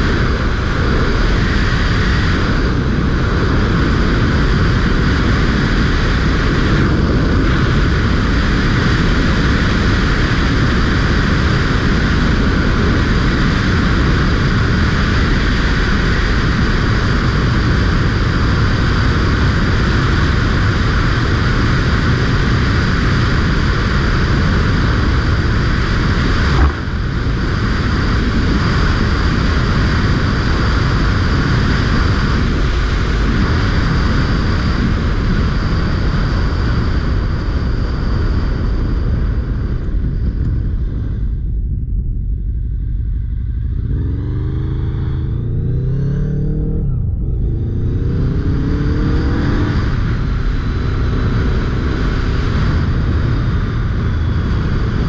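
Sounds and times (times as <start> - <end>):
motorcycle engine running: 0.0 - 55.0
wind rush on microphone: 0.0 - 55.0
brief knock: 26.5 - 26.8.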